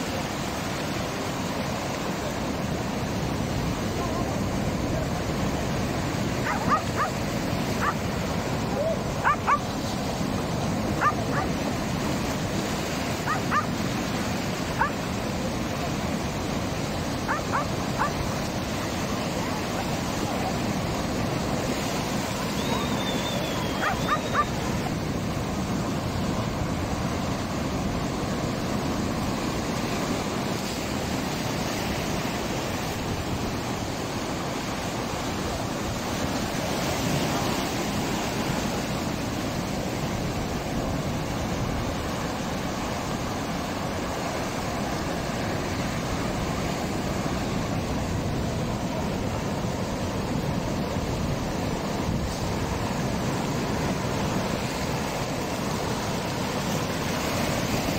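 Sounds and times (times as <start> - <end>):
surf breaking over rocks: 0.0 - 57.9.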